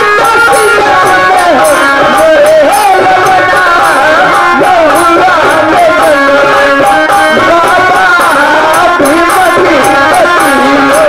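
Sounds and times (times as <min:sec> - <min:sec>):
hand drum beat: 0:00.0 - 0:11.0
harmonium tones: 0:00.0 - 0:11.0
person singing folk melody: 0:00.0 - 0:11.0.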